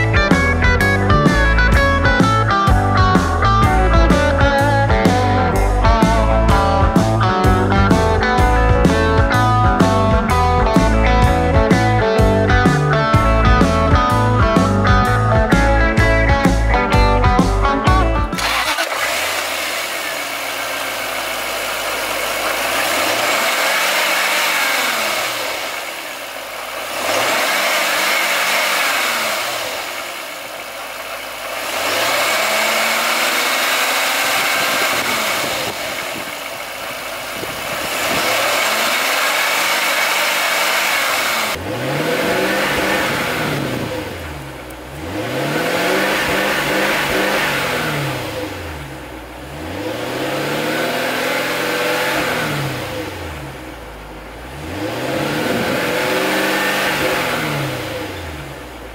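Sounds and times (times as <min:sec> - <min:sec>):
engine revving: 0:00.0 - 0:58.9.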